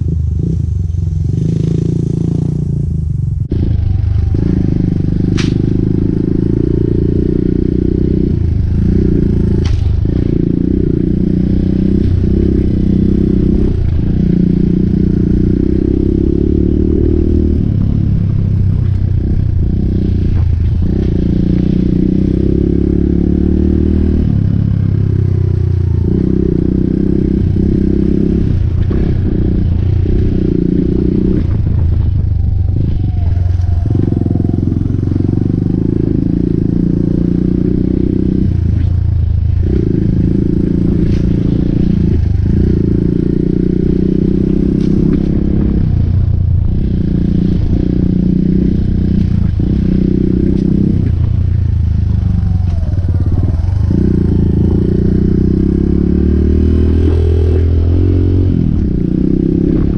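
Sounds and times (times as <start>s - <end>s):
motorcycle engine running: 0.0s - 59.9s
sharp click: 5.3s - 5.7s.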